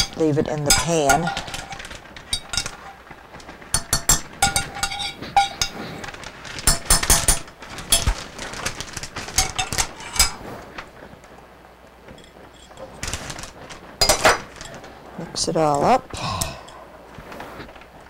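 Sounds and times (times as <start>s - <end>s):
metal spoon scraping frying pan: 3.8s - 6.0s.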